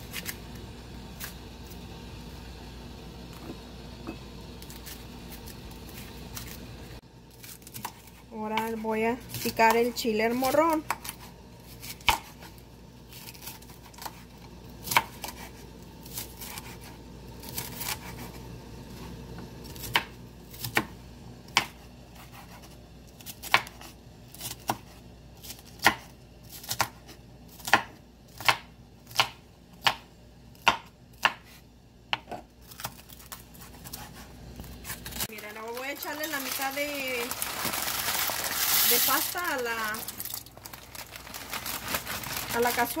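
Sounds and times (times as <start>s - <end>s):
knife chopping on wooden board: 25.7s - 26.1s, 26.7s - 32.9s.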